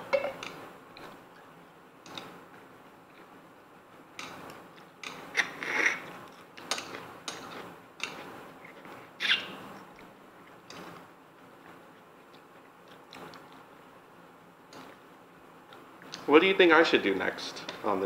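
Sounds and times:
chewing: 0:09.8 - 0:13.7.

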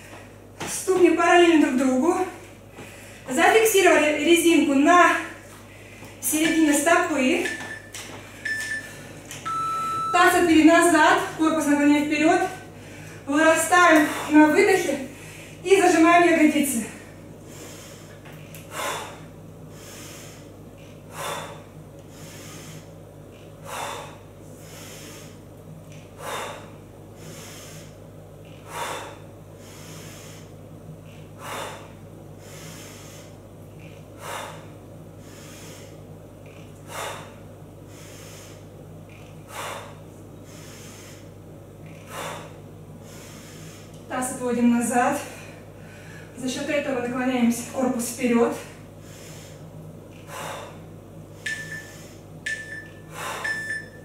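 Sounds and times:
steady low hum: 0:00.0 - 0:54.0
woman's forceful breaths: 0:02.6 - 0:03.3, 0:05.3 - 0:06.2, 0:12.6 - 0:13.3, 0:13.9 - 0:15.6, 0:16.8 - 0:44.1, 0:45.2 - 0:46.4, 0:48.5 - 0:54.0.

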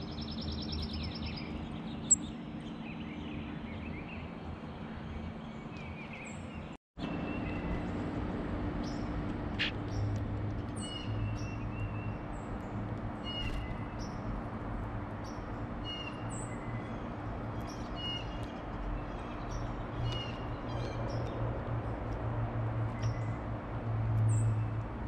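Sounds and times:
songbirds chirping: 0:00.0 - 0:22.1.

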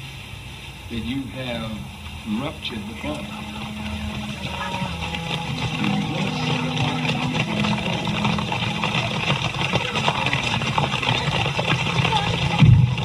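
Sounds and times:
road and wind noise: 0:00.0 - 0:13.0
vehicle engine humming: 0:00.0 - 0:13.0.

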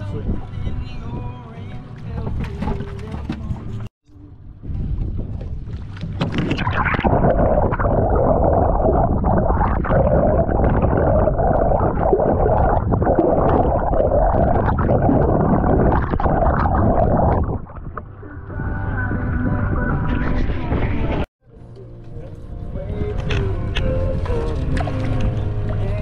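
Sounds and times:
underwater rush of water: 0:05.6 - 0:18.1.

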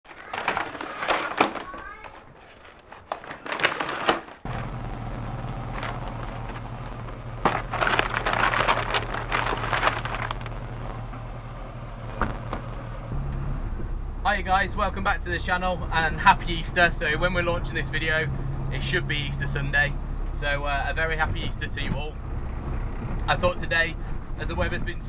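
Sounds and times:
plastic bag rustling: 0:00.0 - 0:10.6
car engine idling: 0:02.4 - 0:14.7.

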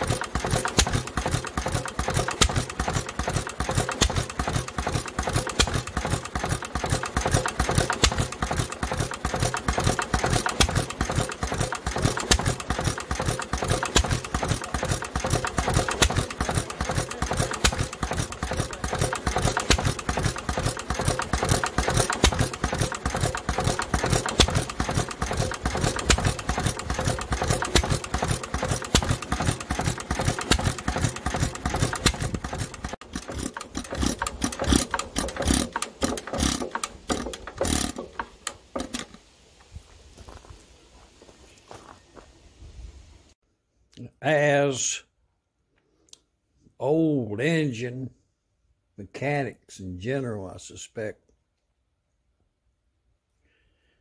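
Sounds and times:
hit-and-miss engine running: 0:00.0 - 0:39.3.

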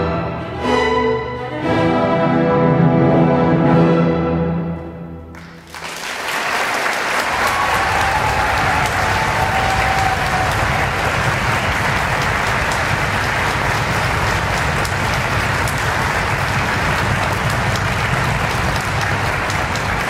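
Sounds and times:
audience applauding: 0:05.3 - 0:20.0.

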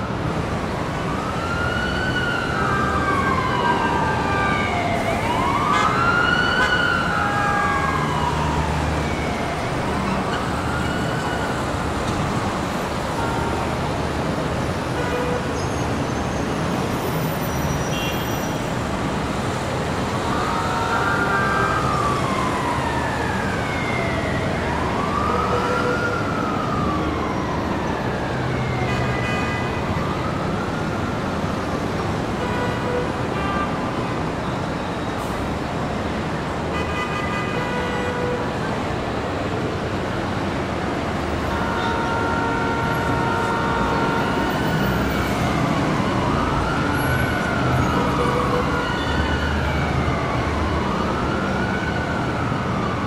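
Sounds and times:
city traffic noise: 0:00.0 - 0:53.0
emergency siren wailing: 0:00.0 - 0:53.0.

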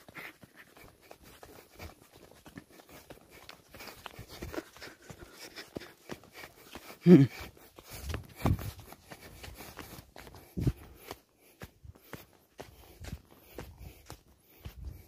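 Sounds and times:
footsteps crunching on sand: 0:00.0 - 0:15.0
person grunting: 0:07.0 - 0:07.3.

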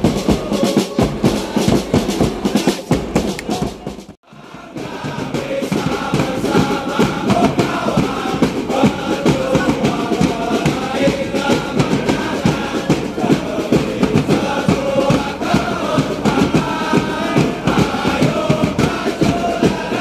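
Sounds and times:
bass drums beating: 0:00.0 - 0:04.2
crowd chanting in unison: 0:00.0 - 0:20.0.

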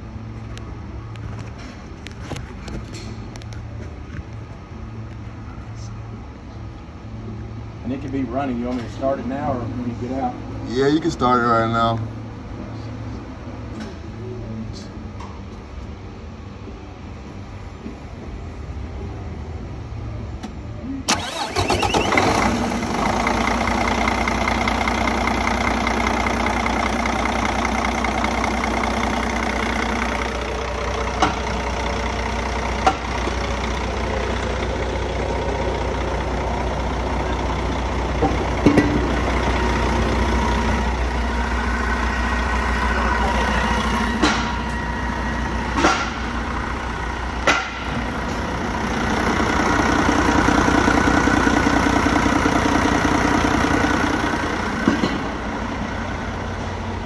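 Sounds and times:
diesel engine idling: 0:21.0 - 0:57.0.

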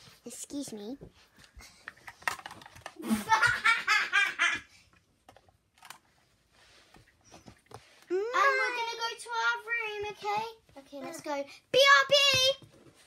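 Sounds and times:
toys clicking and tapping: 0:01.8 - 0:03.0
child laughing: 0:03.0 - 0:04.7.

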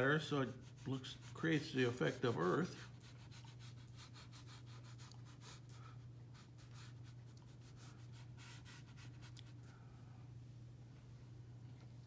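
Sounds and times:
brush strokes on paper: 0:00.0 - 0:09.6.

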